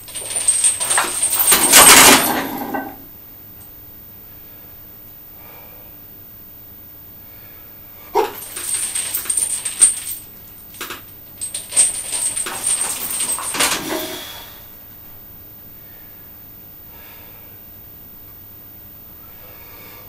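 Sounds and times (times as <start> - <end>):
chains rattling and clinking: 0.0 - 3.0, 8.2 - 14.5.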